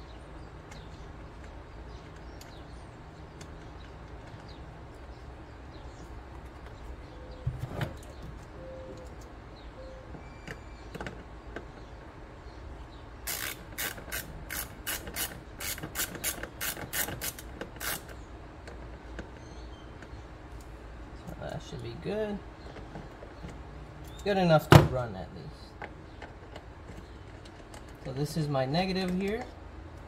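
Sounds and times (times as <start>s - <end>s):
hand ratchet clicking: 13.2s - 18.2s.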